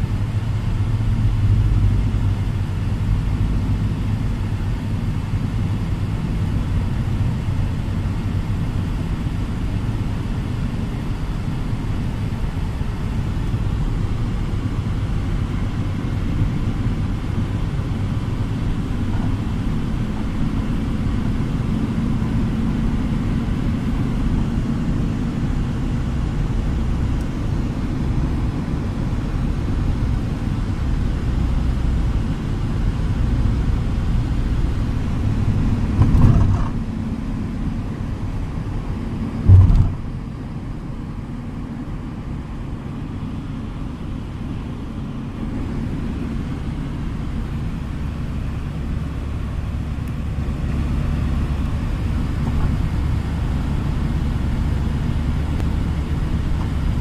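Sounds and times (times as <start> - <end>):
car road and engine rumble: 0.0 - 57.0
thump: 39.4 - 40.1.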